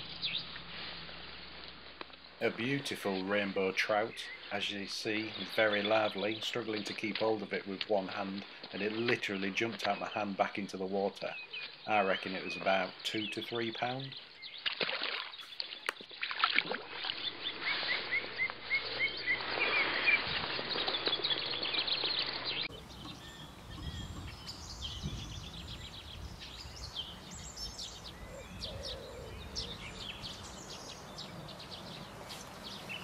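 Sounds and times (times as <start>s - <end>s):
songbirds chirping and singing: 2.4s - 14.7s, 17.2s - 33.0s
fish splashing into water: 14.6s - 21.4s.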